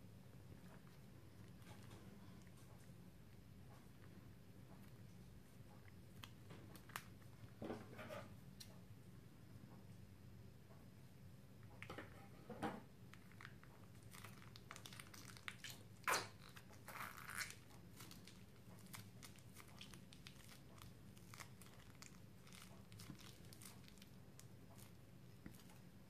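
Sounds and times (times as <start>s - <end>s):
plastic sachet crinkling: 13.2s - 15.8s, 16.4s - 25.8s.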